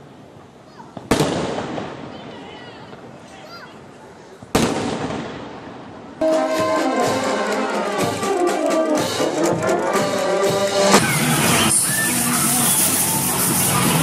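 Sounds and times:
firework bang: 0.9s - 2.2s, 4.5s - 5.8s
brass band playing: 6.2s - 14.0s
steady drum beat: 6.2s - 14.0s.

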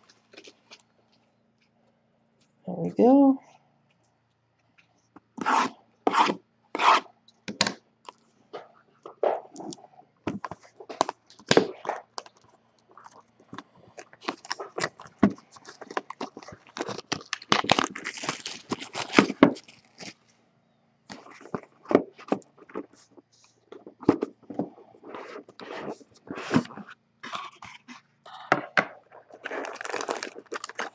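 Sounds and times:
cardboard scraping: 5.4s - 7.1s, 25.0s - 28.0s
packaging tearing and crinkling: 10.6s - 20.2s, 29.1s - 30.9s.

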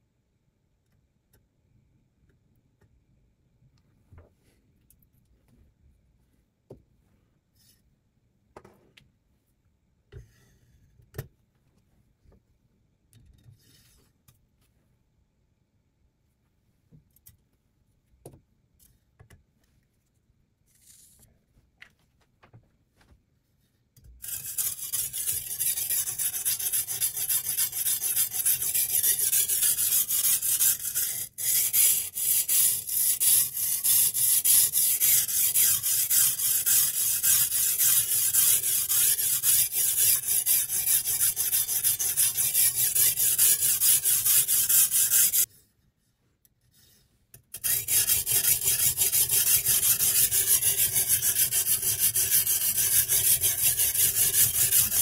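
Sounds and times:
sharpening stone scraping steel blade: 24.2s - 45.5s, 47.5s - 55.0s.

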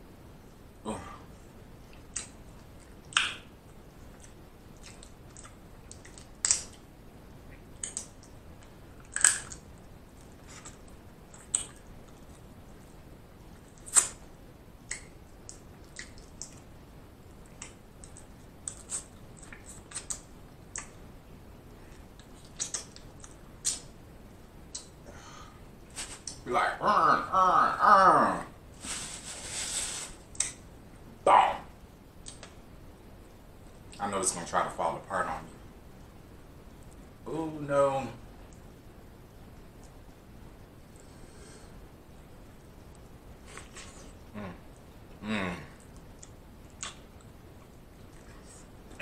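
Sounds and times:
wet mouth clicks and smacks: 1.9s - 3.5s, 10.6s - 12.4s, 13.8s - 14.2s, 14.9s - 16.6s, 17.4s - 21.0s, 22.2s - 23.9s, 30.3s - 30.6s, 45.8s - 49.0s.

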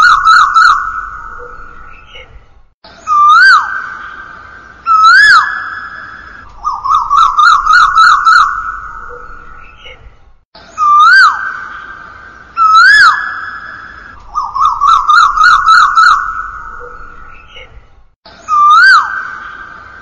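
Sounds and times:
koel calling: 4.9s - 10.0s.

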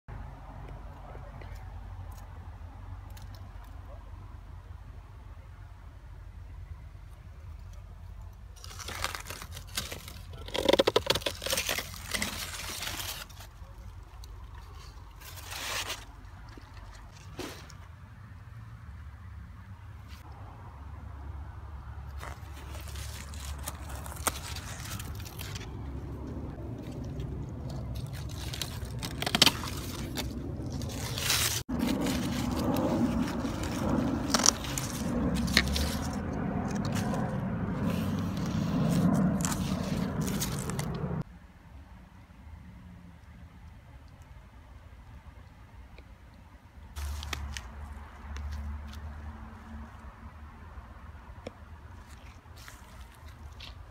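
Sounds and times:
leaves rustling and crinkling: 7.1s - 18.2s, 21.8s - 41.3s, 46.9s - 50.4s, 51.0s - 53.9s
pruning shears crunching through stalks: 8.5s - 17.8s, 22.1s - 41.2s, 47.0s - 49.1s, 51.9s - 53.9s
low rumble: 22.9s - 41.3s.

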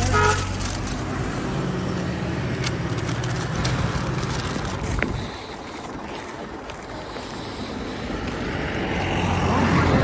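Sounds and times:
idling vehicle engine hum: 0.0s - 10.0s
paper wrapper crinkling: 2.8s - 5.0s.

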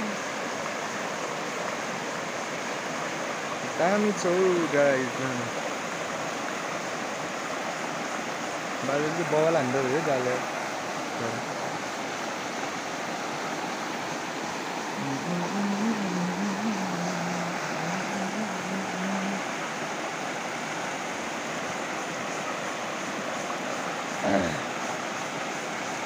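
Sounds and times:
river rushing over rocks: 0.0s - 26.0s
faint low wavering hum: 14.9s - 24.8s.

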